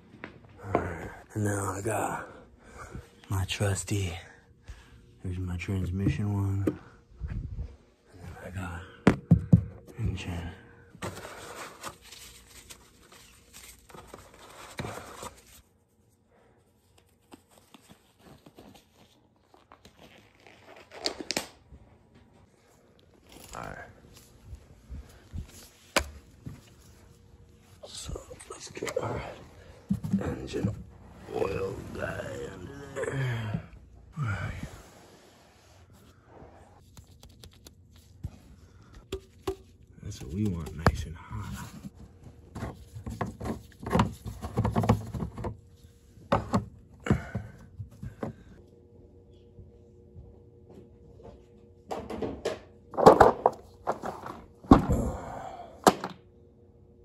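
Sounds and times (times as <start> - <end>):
glove crinkling and rustling: 16.7 - 22.2.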